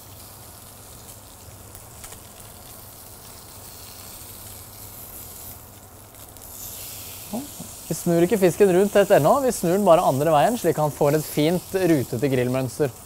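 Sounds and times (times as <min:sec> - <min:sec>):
fish sizzling in a pan: 0:00.0 - 0:13.0.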